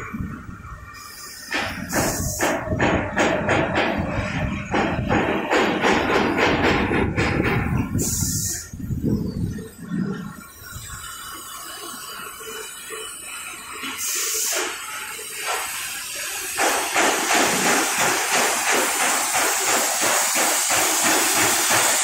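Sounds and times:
short hiss: 1.0s - 2.6s, 8.0s - 8.8s, 11.1s - 22.0s
fast rattling machine noise: 1.5s - 8.0s, 16.6s - 22.0s.

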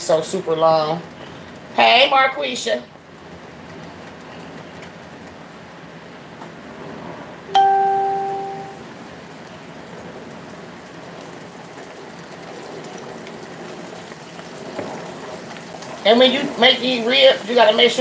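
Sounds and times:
low hiss: 7.4s - 13.9s
bright chime: 7.5s - 8.8s.

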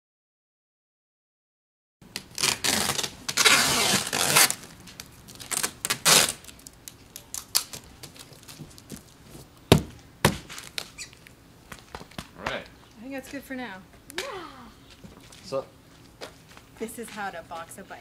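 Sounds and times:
sharp knocks: 9.7s - 10.6s.

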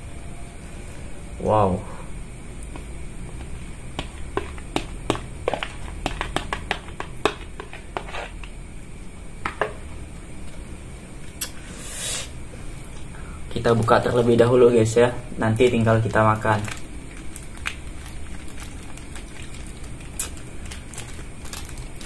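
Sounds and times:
plastic spoon scraping plastic bowl: 4.3s - 8.5s.

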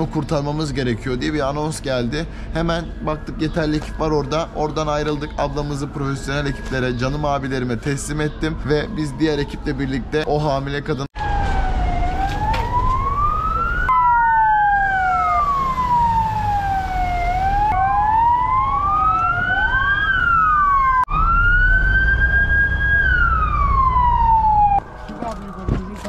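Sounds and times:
emergency vehicle sirens wailing: 0.0s - 26.0s.

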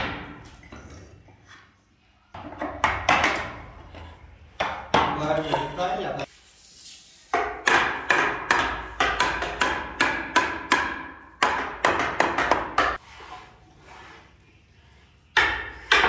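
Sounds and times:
hammer striking wooden frame: 7.4s - 13.0s, 15.3s - 16.0s.

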